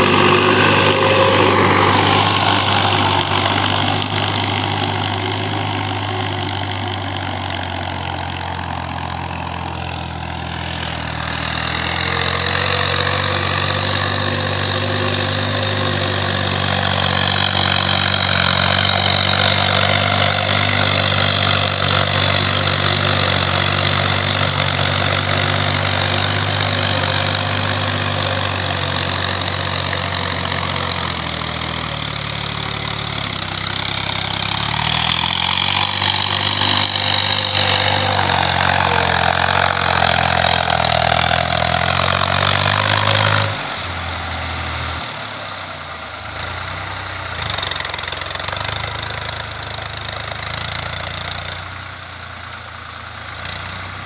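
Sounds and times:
wavering high whine: 0.0 - 6.0, 8.3 - 23.6, 35.4 - 41.6
tractor engine running under load: 0.0 - 54.0.

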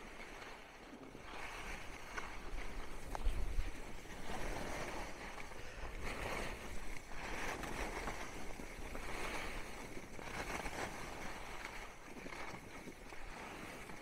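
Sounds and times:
wind rumbling on microphone: 0.0 - 14.0
skis hissing over snow: 1.7 - 12.0.

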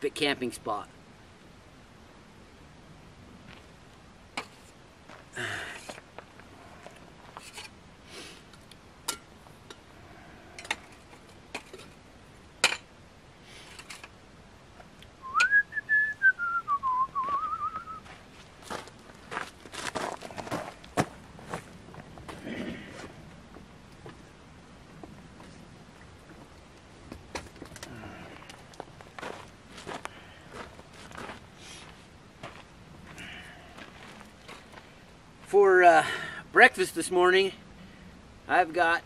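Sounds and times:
man whistling a tune: 15.2 - 18.0.

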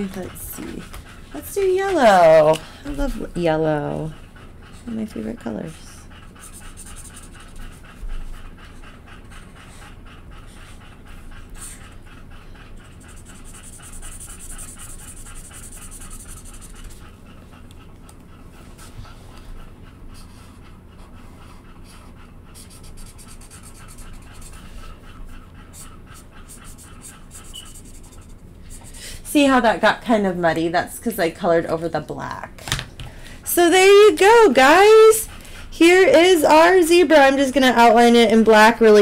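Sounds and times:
dog panting: 0.0 - 32.5, 33.1 - 39.0
marker scratching on paper: 6.4 - 7.8, 12.8 - 17.1, 22.6 - 24.8, 26.5 - 29.6, 33.6 - 35.2.

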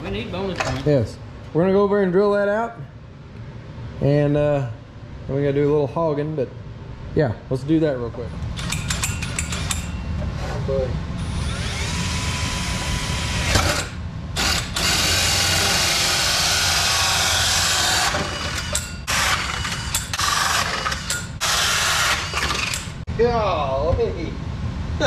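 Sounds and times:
drill grinding through metal: 11.2 - 23.0.

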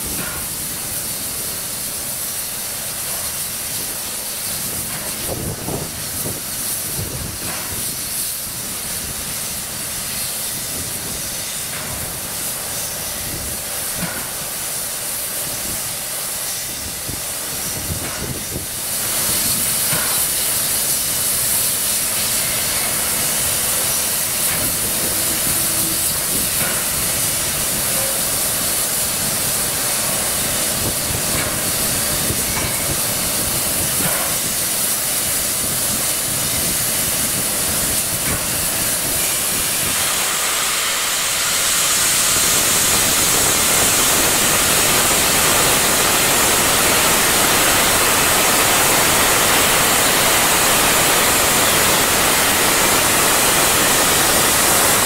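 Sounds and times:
steam locomotive hissing: 0.0 - 55.0.

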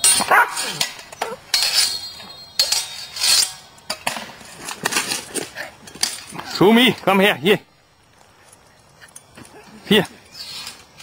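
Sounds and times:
swords clashing: 0.0 - 6.3.

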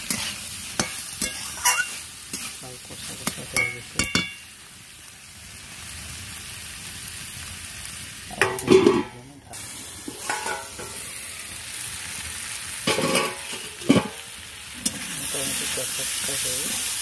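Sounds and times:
curry sizzling in a pan: 0.0 - 17.0
metal lid clattering: 8.4 - 9.2, 10.1 - 11.0, 12.9 - 14.2.

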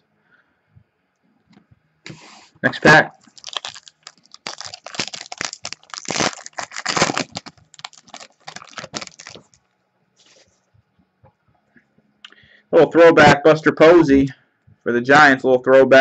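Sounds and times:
foil wrapper crinkling and tearing: 3.2 - 9.6.

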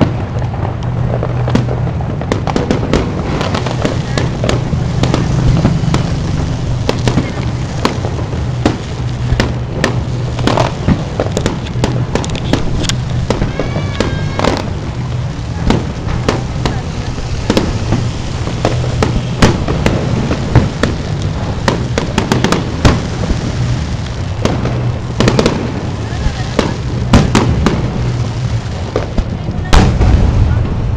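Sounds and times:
fireworks bangs and crackles: 0.0 - 30.9
steady low hum: 0.1 - 30.9.

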